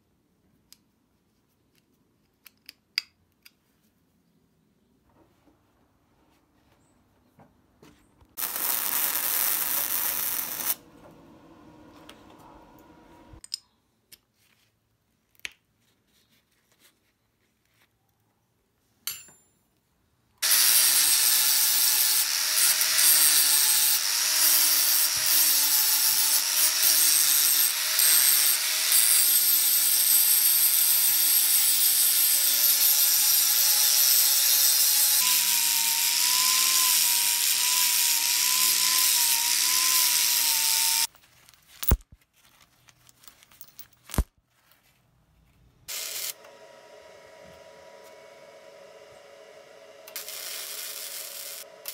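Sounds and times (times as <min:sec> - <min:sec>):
angle grinder cutting steel: 0:08.4 - 0:10.8, 0:20.4 - 0:41.1, 0:45.9 - 0:46.6, 0:47.2 - 0:51.9.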